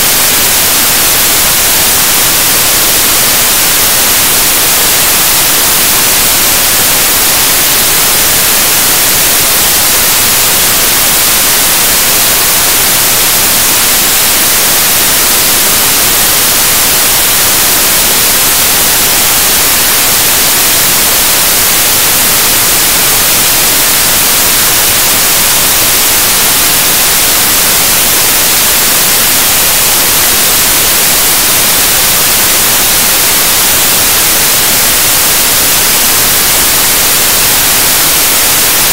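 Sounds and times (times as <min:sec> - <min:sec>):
loud static hiss: 0:00.0 - 0:38.9.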